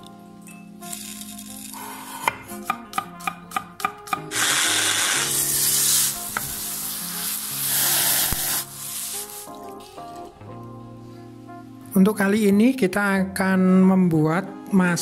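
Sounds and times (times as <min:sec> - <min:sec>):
food sizzling in frying pan: 0:04.3 - 0:09.5.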